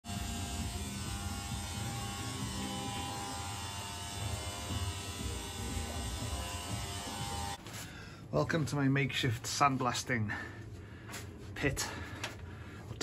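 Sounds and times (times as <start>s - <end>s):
electric motor buzzing hum: 0.1s - 7.6s.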